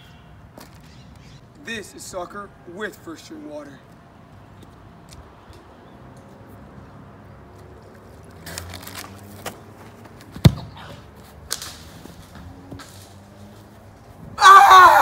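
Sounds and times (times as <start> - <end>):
soccer ball kicked: 10.3 - 11.0.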